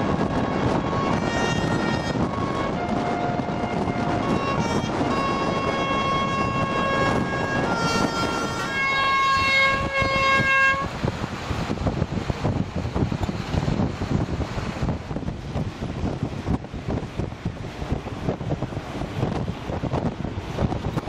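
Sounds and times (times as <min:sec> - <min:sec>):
road rumble: 0:00.0 - 0:21.0
wind: 0:00.0 - 0:21.0
car horns sounding: 0:00.4 - 0:10.9.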